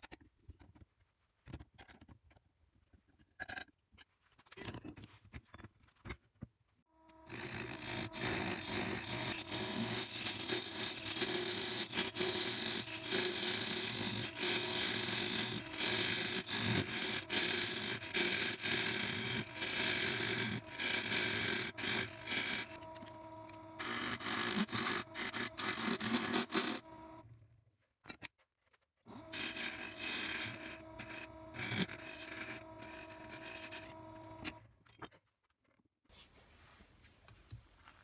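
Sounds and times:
lathe humming: 7.0 - 27.2, 29.1 - 34.6
gouge scraping spinning wood: 7.1 - 27.2, 29.1 - 34.6.

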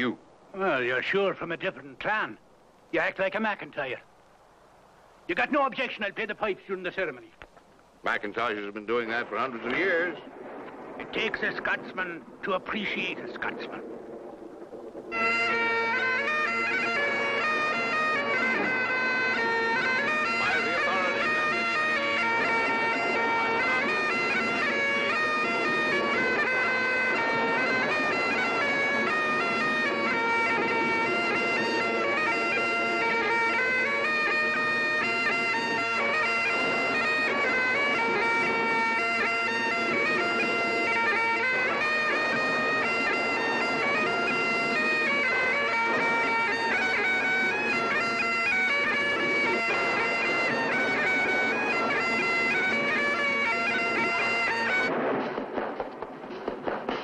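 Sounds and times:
bagpipes playing: 14.4 - 55.2.

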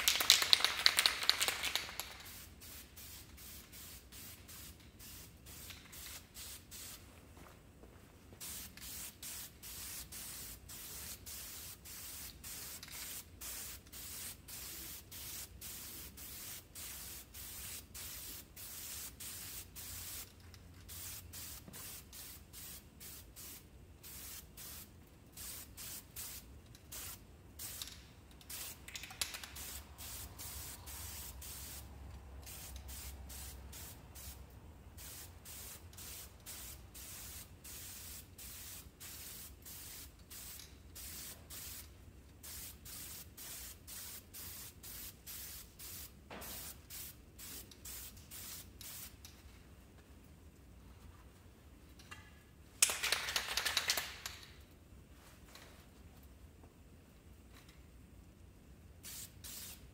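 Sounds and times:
spray can hissing: 0.1 - 7.0, 8.4 - 20.3, 20.9 - 34.4, 35.0 - 49.2, 59.0 - 59.8.

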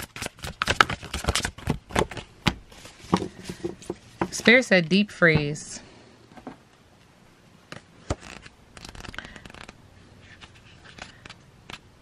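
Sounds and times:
cards and paper rustling: 0.0 - 4.7, 7.7 - 11.9.

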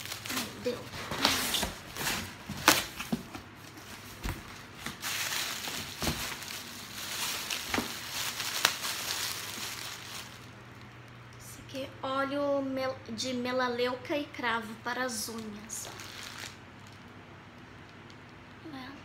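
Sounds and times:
plastic bag crinkling: 0.0 - 10.9, 15.3 - 18.1.

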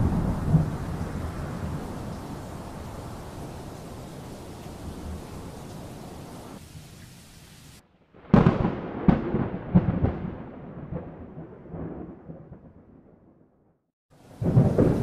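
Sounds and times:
loud thunderclap: 0.0 - 2.8, 8.2 - 13.4, 14.3 - 15.0
wind and rain hiss: 0.0 - 9.8, 14.1 - 15.0.

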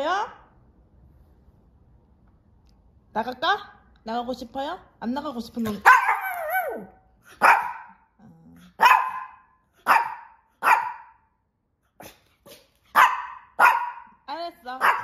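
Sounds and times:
small dog yelping: 5.8 - 8.0, 8.8 - 11.1
small dog barking: 5.8 - 8.1, 8.7 - 11.3, 12.0 - 14.2, 14.8 - 15.0.

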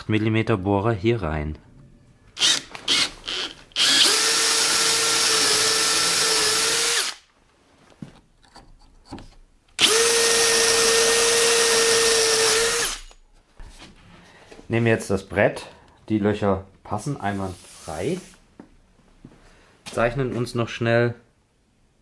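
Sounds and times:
cordless drill drilling into wood: 2.4 - 7.2, 9.8 - 13.2.

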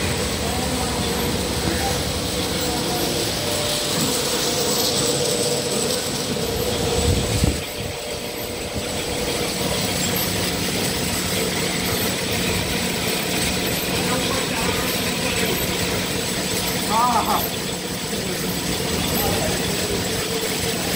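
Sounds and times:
thin high tone: 0.0 - 12.7
washing machine running: 0.0 - 20.9.

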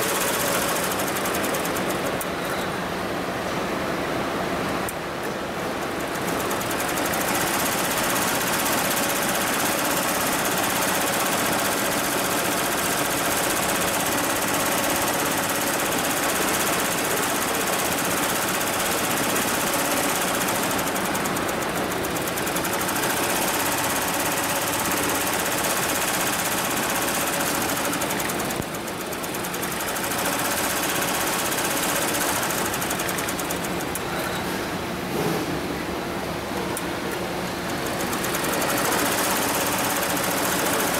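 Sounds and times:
embroidery machine chattering: 5.8 - 34.1, 37.7 - 40.9.

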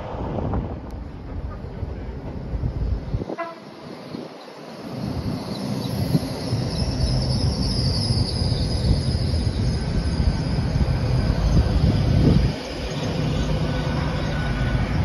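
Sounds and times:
train wheels rumbling: 0.0 - 15.0.

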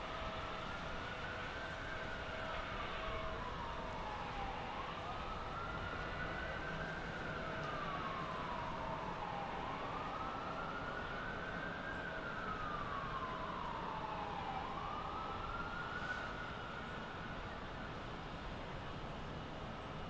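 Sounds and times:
emergency siren wailing: 0.0 - 20.0.

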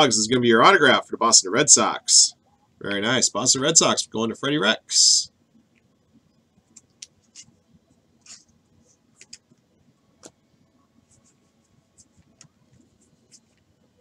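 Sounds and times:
cards clicking and swishing: 8.2 - 8.5, 9.2 - 9.5.

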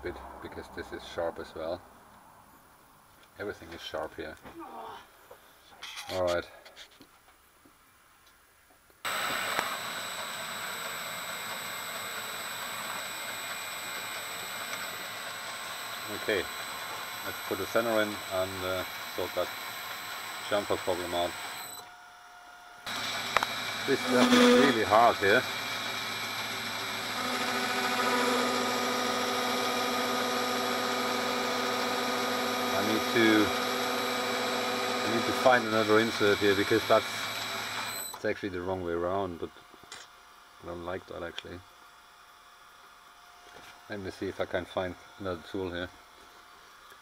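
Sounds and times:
high whine: 9.1 - 21.8, 22.9 - 38.0
metal lathe running: 9.1 - 21.9, 22.9 - 38.2.

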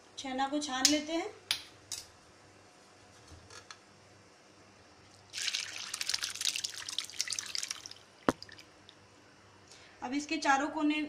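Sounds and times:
liquid splashing into cloth: 5.3 - 8.8.

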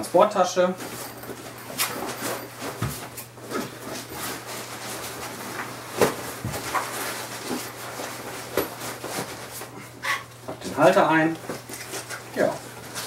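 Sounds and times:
fabric rustling: 0.8 - 9.9.

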